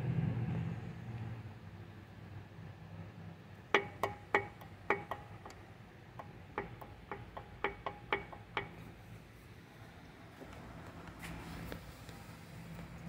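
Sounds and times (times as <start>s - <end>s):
sharp metallic clacks: 3.7s - 8.9s.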